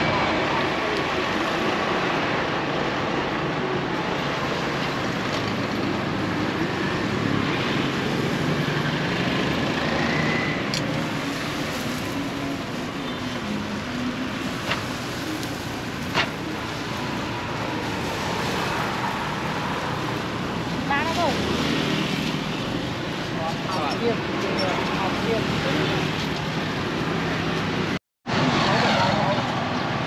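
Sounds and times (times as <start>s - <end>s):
roadside traffic: 0.0s - 30.0s.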